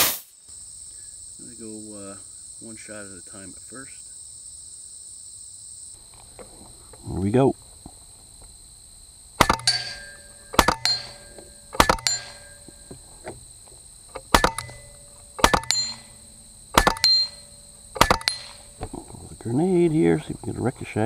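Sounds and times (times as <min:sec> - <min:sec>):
air rifle shots: 0:09.4 - 0:12.9, 0:14.1 - 0:19.2
pellet clanging on steel gong: 0:09.4 - 0:13.1, 0:14.2 - 0:19.1.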